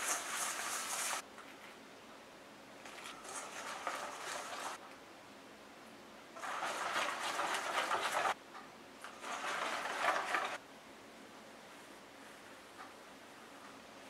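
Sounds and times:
whisk beating batter in bowl: 3.1 - 4.8, 6.4 - 8.4, 9.0 - 10.6.

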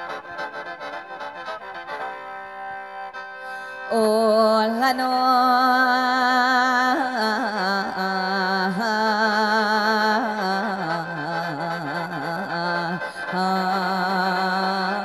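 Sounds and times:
person singing wavering melody: 3.9 - 15.0.

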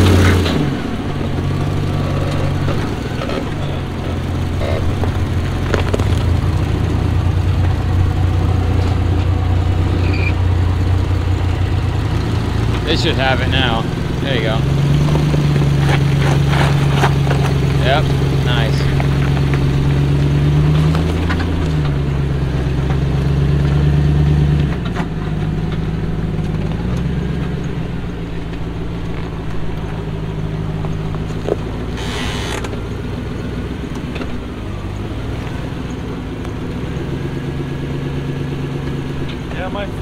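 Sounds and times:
vehicle engine revving: 0.0 - 40.0
brief hiss: 32.0 - 32.7.

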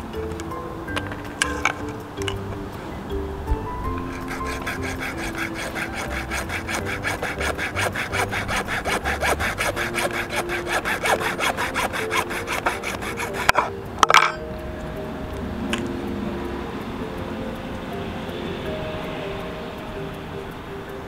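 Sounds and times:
hacksaw sawing plastic: 4.0 - 13.7.

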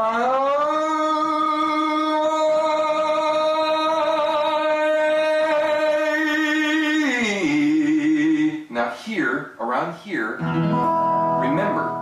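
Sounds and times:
man singing a held note: 0.0 - 8.7.

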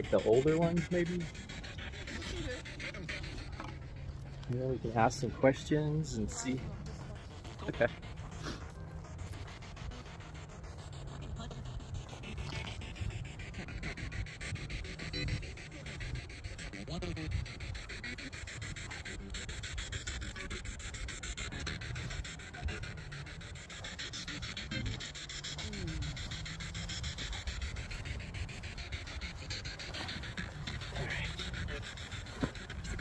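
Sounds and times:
fast-chopped radio static: 0.0 - 33.0
scraps of radio sound: 29.2 - 33.0.

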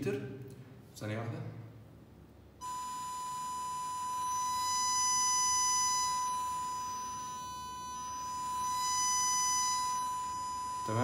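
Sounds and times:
sine-wave test tone: 2.6 - 11.0.

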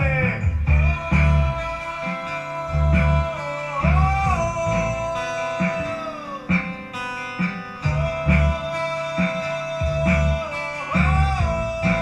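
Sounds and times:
acoustic guitar strumming: 0.0 - 12.0
bending lead melody: 0.0 - 12.0
electric bass notes: 0.0 - 12.0.

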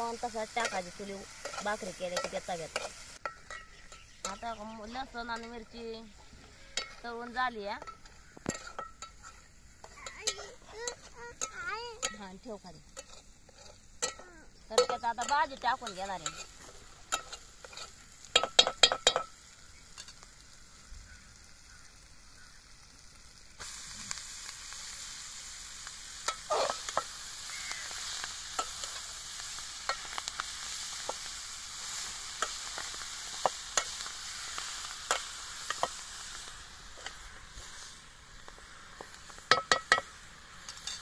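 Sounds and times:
leaves sizzling in hot oil: 0.0 - 41.0
ladle clinking on steel pot: 1.4 - 4.4, 17.1 - 19.4.

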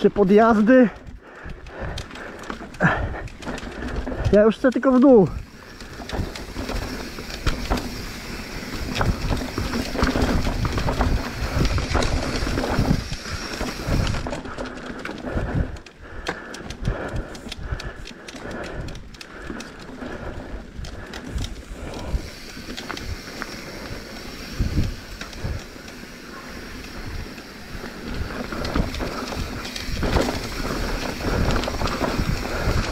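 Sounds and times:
bike rattling: 0.0 - 32.9
tyres crunching over stones: 1.9 - 15.2, 20.8 - 32.9
wind rumble on microphone: 5.4 - 14.4, 24.4 - 25.8, 27.0 - 32.9.

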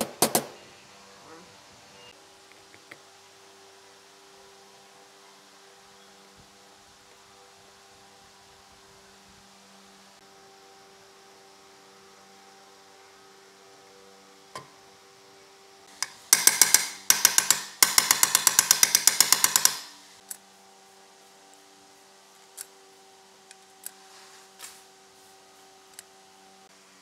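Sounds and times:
power tool rattling strokes: 15.9 - 20.2.

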